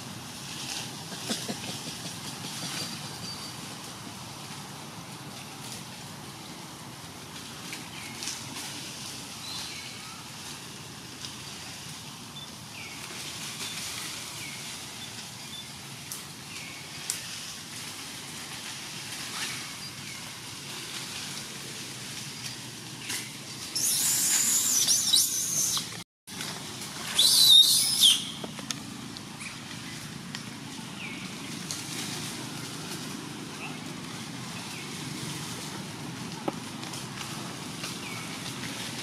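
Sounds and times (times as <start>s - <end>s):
steady background hiss: 0.0s - 39.0s
short chirping calls: 23.7s - 26.0s, 27.2s - 28.4s.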